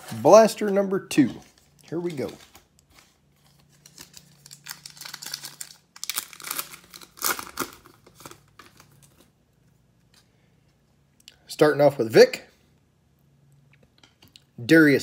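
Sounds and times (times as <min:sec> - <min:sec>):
foil wrapper tearing and crinkling: 0:01.5 - 0:09.3.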